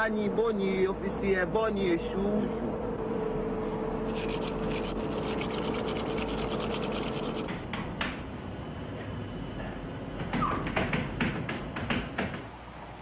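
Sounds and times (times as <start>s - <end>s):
steady hum: 0.0s - 10.4s.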